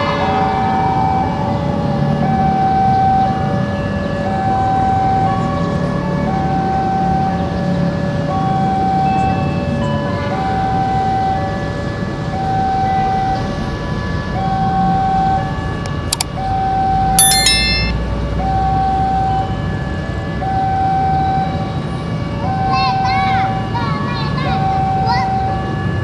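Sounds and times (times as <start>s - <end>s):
level crossing alarm two-tone warning: 0.6s - 26.0s
bright ringing clatter: 17.2s - 18.0s.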